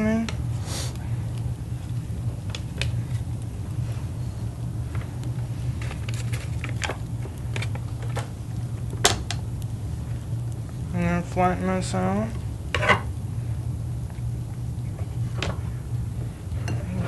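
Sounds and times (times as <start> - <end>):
steady low hum: 0.0 - 17.0
seasoning packet rustling: 5.7 - 8.2.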